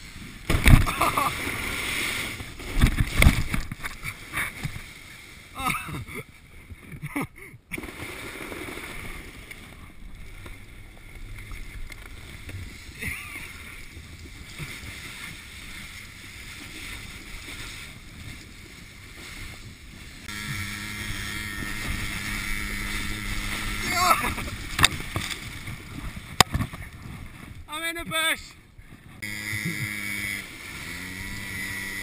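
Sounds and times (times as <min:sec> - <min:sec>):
wind: 0:00.0 - 0:32.0
quad bike engine drone: 0:20.2 - 0:25.0, 0:29.2 - 0:32.0.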